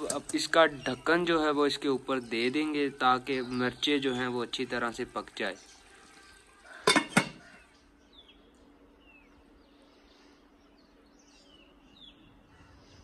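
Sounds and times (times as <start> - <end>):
faint birds chirping: 0.0 - 13.0.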